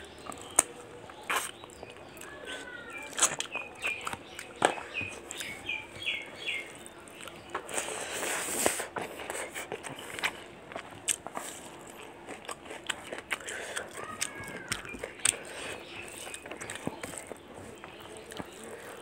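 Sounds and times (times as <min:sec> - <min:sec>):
bird chirping: 0:00.0 - 0:07.6, 0:14.3 - 0:19.0
chewing with mouth clicks: 0:00.0 - 0:19.0.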